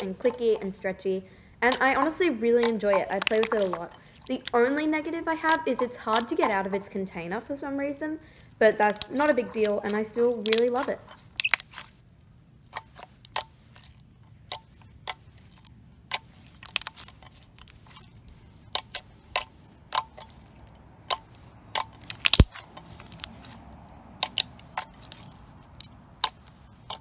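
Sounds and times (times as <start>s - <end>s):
slime clicking under fingers: 1.6s - 4.8s, 8.8s - 11.9s, 12.7s - 13.6s, 16.1s - 18.0s, 18.7s - 23.6s, 24.2s - 27.0s.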